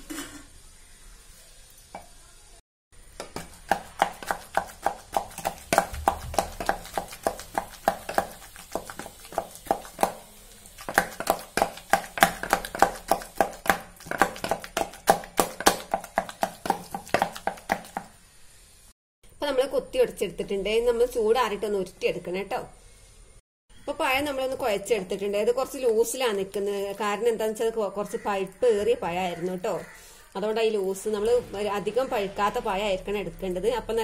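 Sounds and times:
wooden churner knocking on bowl: 0:03.2 - 0:10.2, 0:10.8 - 0:18.1.

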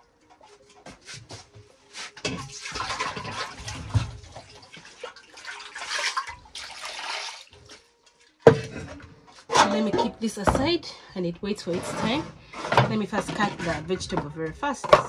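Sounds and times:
water pouring and splashing: 0:02.2 - 0:08.5.

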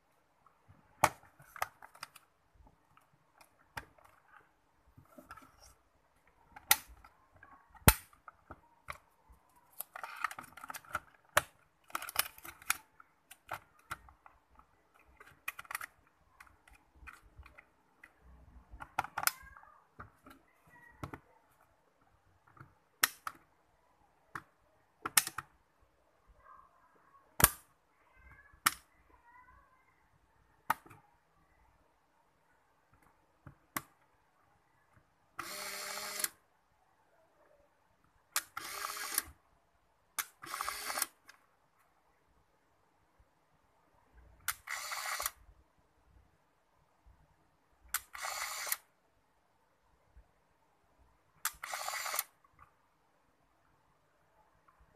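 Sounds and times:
sharp plastic camera clicks: 0:35.4 - 0:36.4, 0:38.3 - 0:39.4, 0:40.2 - 0:41.4, 0:44.5 - 0:45.4, 0:47.9 - 0:48.9, 0:51.4 - 0:52.4.

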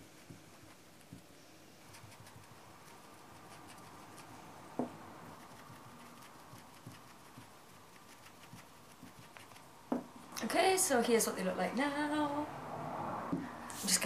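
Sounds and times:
brush dabbing on fabric: 0:00.0 - 0:09.8.

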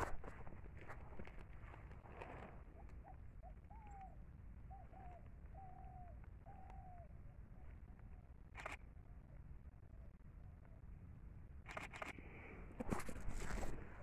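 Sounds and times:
bird calling faintly: 0:02.0 - 0:10.8.

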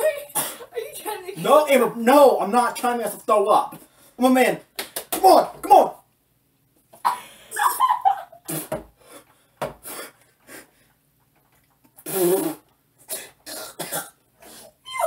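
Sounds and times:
man gagging and retching: 0:12.0 - 0:14.1.

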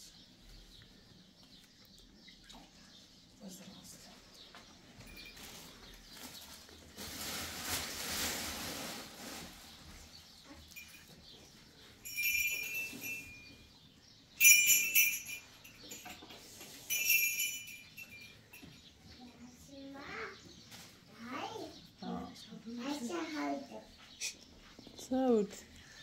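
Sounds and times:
rustling: 0:05.0 - 0:13.7
metallic rings: 0:12.0 - 0:19.0.

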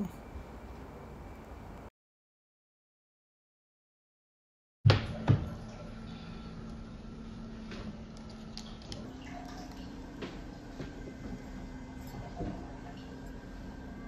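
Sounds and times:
machine humming: 0:04.9 - 0:14.0
faint liquid sounds: 0:08.1 - 0:14.0.

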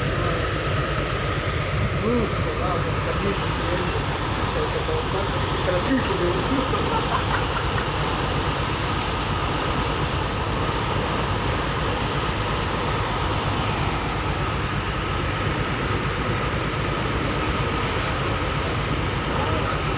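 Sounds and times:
faint steady whine: 0:00.0 - 0:19.9
ship engines droning: 0:00.0 - 0:19.9
water rushing in wake: 0:00.0 - 0:19.9.

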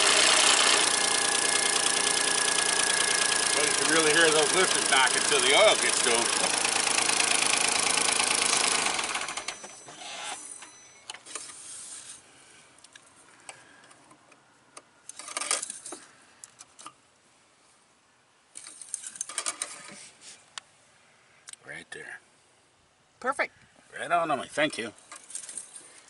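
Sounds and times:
car engine idling with lifter knock: 0:00.0 - 0:09.5.

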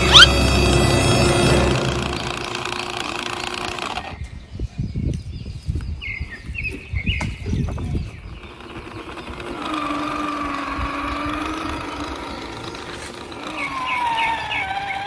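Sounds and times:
short squeaks: 0:00.0 - 0:00.4
small electric motor whining: 0:00.0 - 0:04.3, 0:08.2 - 0:15.0.

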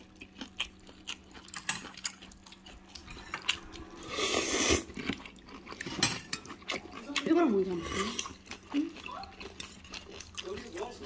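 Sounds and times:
person chewing: 0:00.0 - 0:11.0
slurp of noodles: 0:04.0 - 0:05.0.

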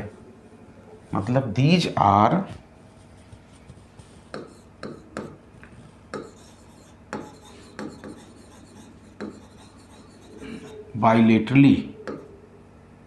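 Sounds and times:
marker pen writing on whiteboard: 0:03.1 - 0:05.4, 0:06.1 - 0:10.9.

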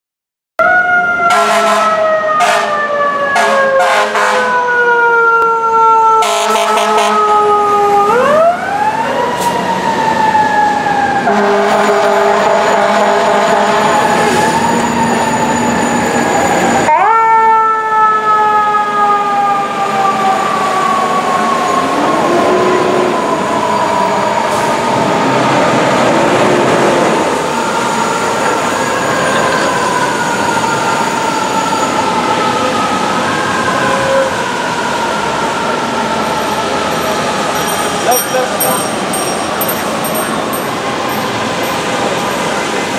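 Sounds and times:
short sharp horn blasts: 0:01.3 - 0:02.7.

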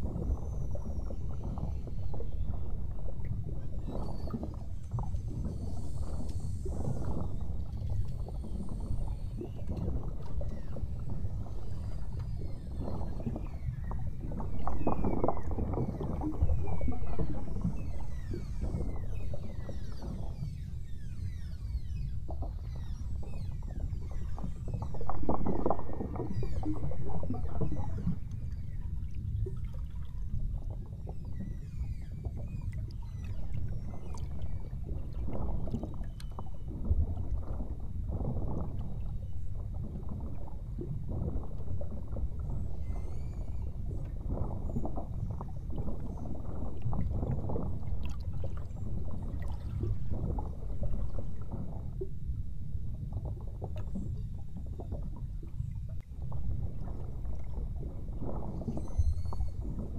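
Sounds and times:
beluga whale chirps and whistles: 0:42.6 - 0:46.6, 0:58.4 - 0:59.9.

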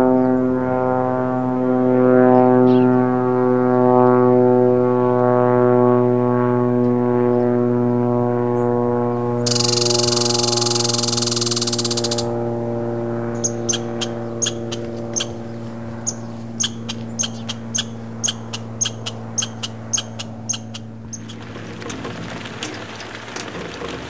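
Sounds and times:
low steady drone: 0:00.0 - 0:21.9
squirrel chirping: 0:09.5 - 0:12.3, 0:13.3 - 0:21.4.

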